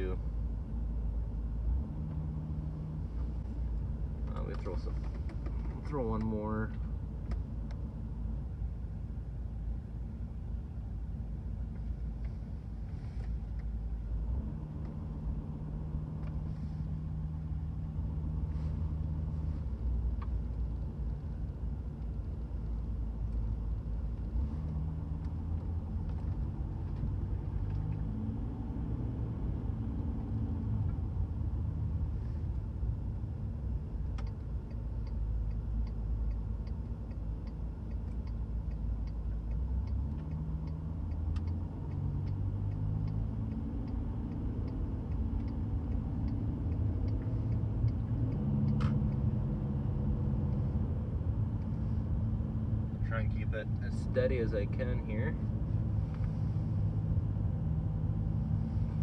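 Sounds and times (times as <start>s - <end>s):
light regular ticking: 32.4s - 57.2s.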